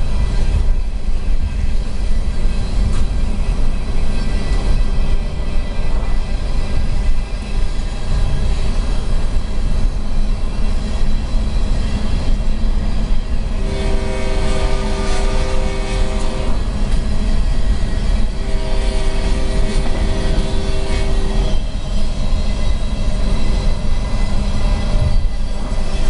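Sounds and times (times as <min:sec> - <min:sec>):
locomotive air horn blasts: 0:13.5 - 0:16.8, 0:18.3 - 0:21.6.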